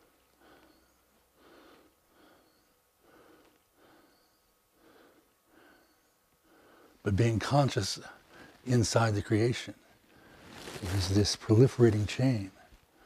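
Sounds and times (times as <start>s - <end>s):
faint breathing: 0.0s - 7.1s, 8.0s - 8.7s, 9.8s - 10.8s.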